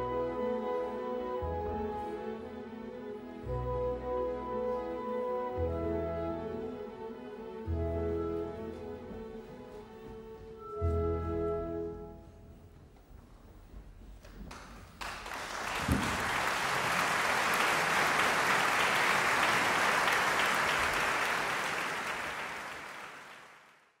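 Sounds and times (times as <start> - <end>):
audience applauding: 14.5 - 24.0.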